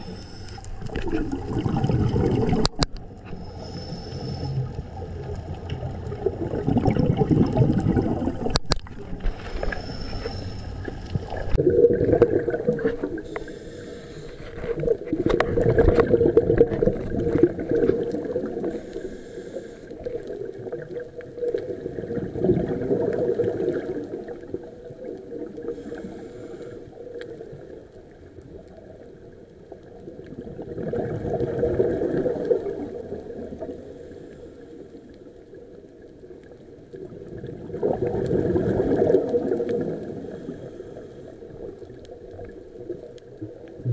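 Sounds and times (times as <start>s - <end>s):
diver breathing through regulator: 0.0s - 0.9s, 3.2s - 4.7s, 9.2s - 11.0s, 13.0s - 14.9s, 18.6s - 20.2s, 25.7s - 27.0s
bubbling rush of exhaust bubbles: 0.9s - 2.8s, 5.8s - 8.6s, 11.5s - 13.3s.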